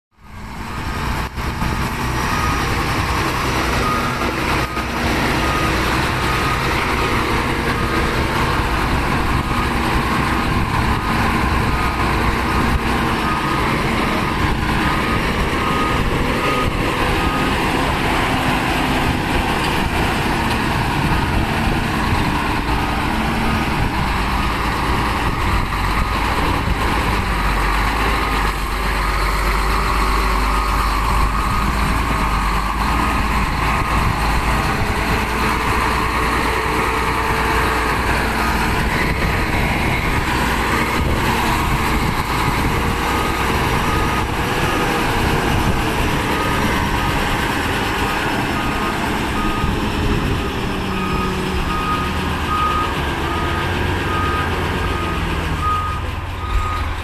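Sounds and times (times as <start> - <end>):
diesel truck engine running: 0.2 - 57.0
reversing beeper: 0.3 - 8.7, 9.4 - 19.3, 48.4 - 56.9.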